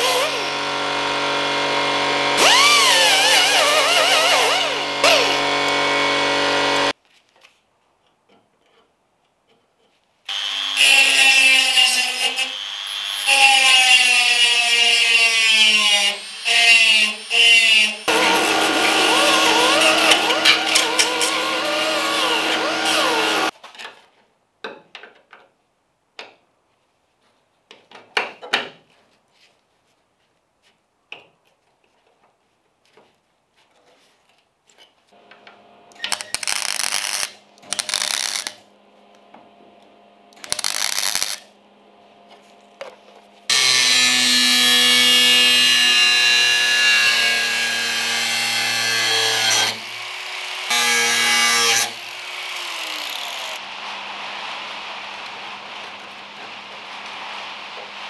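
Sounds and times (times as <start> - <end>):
angle grinder on steel: 0.0 - 6.9, 10.3 - 23.5, 36.0 - 38.6, 40.4 - 41.5, 43.5 - 58.0
die grinder on sheet steel: 0.0 - 7.0, 10.3 - 23.5, 36.0 - 38.6, 40.4 - 41.5, 43.5 - 58.0.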